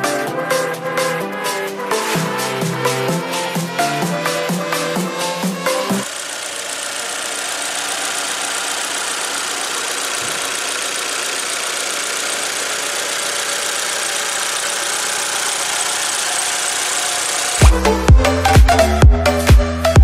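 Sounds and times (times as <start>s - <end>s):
music: 0.0s - 6.1s, 17.6s - 20.0s
pickup engine idling: 4.7s - 18.8s.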